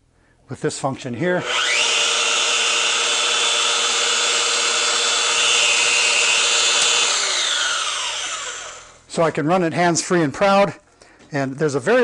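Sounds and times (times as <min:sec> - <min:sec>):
rotary hammer motor whining: 0:01.4 - 0:09.0.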